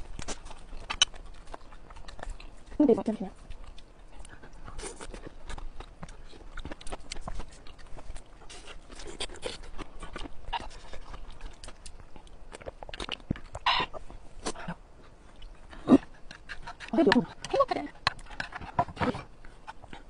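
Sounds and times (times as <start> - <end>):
chewing with wet mouth clicks: 0.0 - 20.0.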